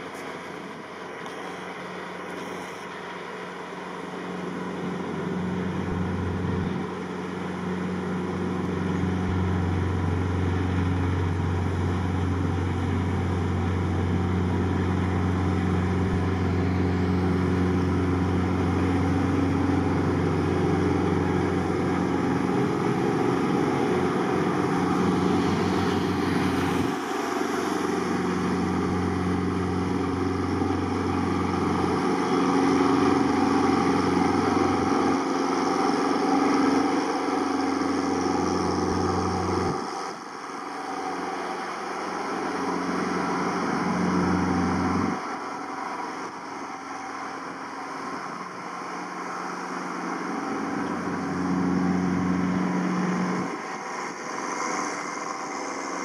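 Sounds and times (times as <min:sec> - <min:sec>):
boat wake wash: 0:00.0 - 0:56.0
tugboat engine running: 0:00.0 - 0:56.0.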